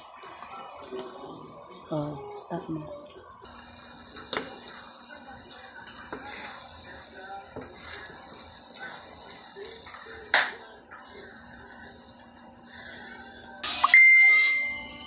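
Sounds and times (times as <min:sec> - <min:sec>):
light sizzle: 0:03.4 - 0:13.6
spatula scraping wok: 0:05.8 - 0:10.0.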